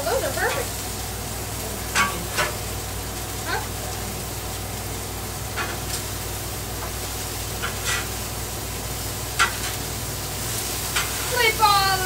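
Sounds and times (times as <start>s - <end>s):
meat and onions sizzling on griddle: 0.0s - 12.0s
metal spatula scraping steel: 7.6s - 8.2s.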